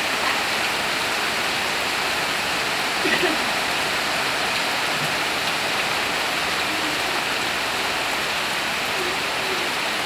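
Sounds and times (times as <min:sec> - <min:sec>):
heavy rain pouring: 0:00.0 - 0:10.0.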